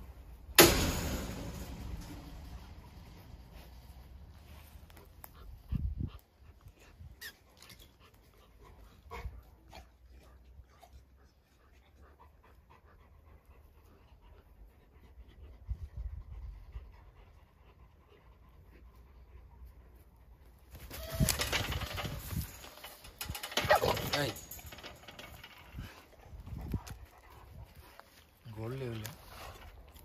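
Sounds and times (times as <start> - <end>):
low thuds: 0.4 - 4.6
dog panting: 4.5 - 20.6.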